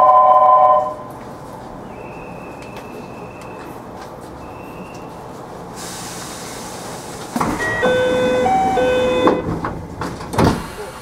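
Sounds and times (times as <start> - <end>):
train door-closing chime: 0.0 - 1.1, 7.4 - 9.6
steady hiss: 5.7 - 7.4.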